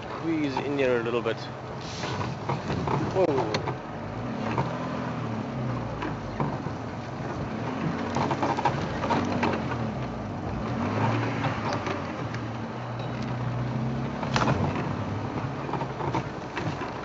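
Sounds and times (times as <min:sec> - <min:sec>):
knocks and clicks: 0:02.1 - 0:03.8.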